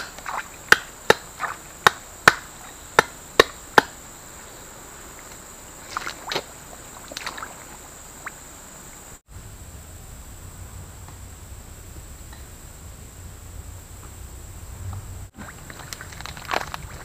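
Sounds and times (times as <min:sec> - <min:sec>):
water splashes: 0:00.0 - 0:02.9, 0:04.9 - 0:09.2, 0:12.8 - 0:17.0
hand slapping muddy water: 0:00.0 - 0:04.0, 0:05.2 - 0:08.4, 0:15.4 - 0:17.0
soft rustles: 0:14.8 - 0:17.0.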